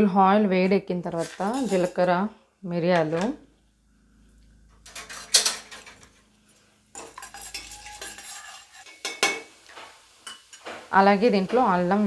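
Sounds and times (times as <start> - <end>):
oil sizzling: 1.0 - 2.1, 4.2 - 12.0
spatula scraping metal pot: 1.2 - 2.0, 4.8 - 6.2, 6.9 - 9.4.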